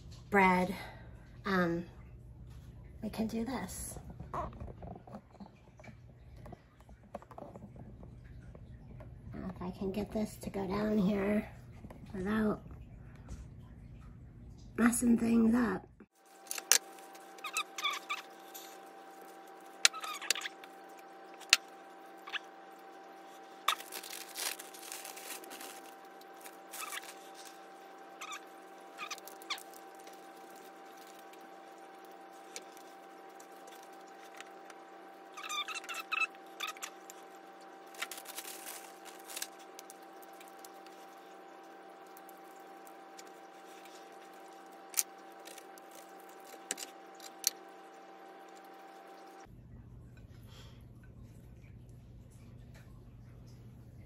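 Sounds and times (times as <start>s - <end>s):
lettuce leaves rustling and squeaking: 16.2s - 49.4s.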